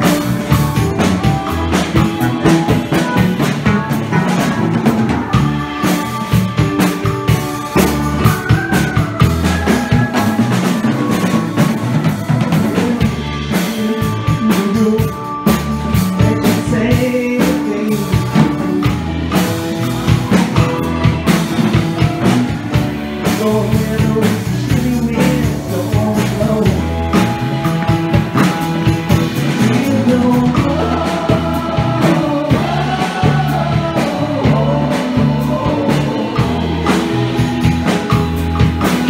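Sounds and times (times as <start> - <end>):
live rock band playing: 0.0 - 39.0.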